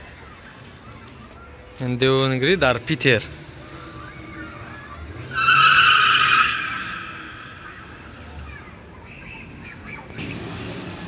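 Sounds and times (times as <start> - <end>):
car engine rumbling: 2.3 - 11.0
car tyres squealing: 3.5 - 10.4.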